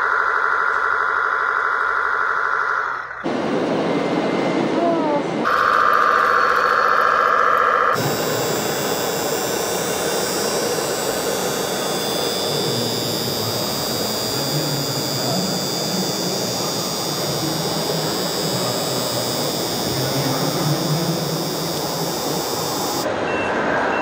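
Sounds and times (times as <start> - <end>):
electric motor high whine: 5.4 - 23.1.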